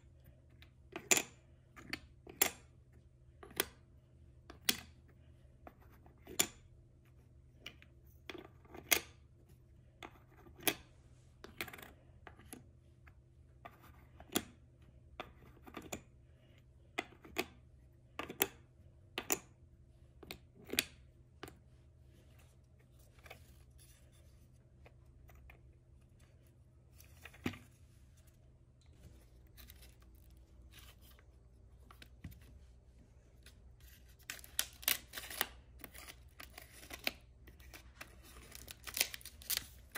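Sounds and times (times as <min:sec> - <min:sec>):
toy packaging clicks and snips: 0:34.0 - 0:39.9.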